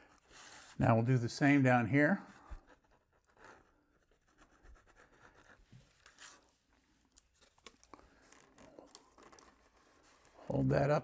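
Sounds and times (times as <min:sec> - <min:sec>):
soft rustling of foam parts: 0:00.0 - 0:11.0.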